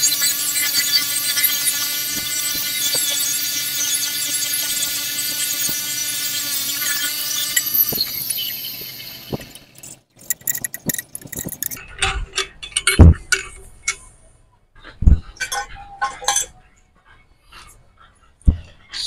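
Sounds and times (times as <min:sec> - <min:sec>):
bench grinder motor whine: 0:00.0 - 0:09.4
metal grinding on wheel: 0:09.8 - 0:12.0.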